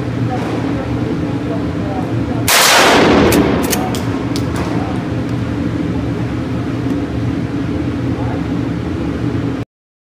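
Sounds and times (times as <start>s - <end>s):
shotgun blast echoing: 2.5s - 4.8s.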